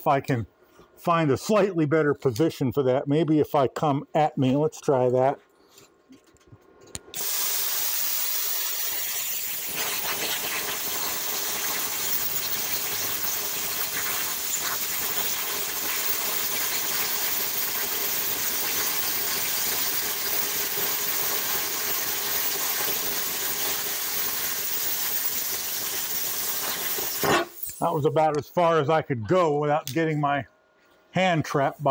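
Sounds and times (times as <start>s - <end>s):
plasma cutter hissing: 7.2s - 27.8s.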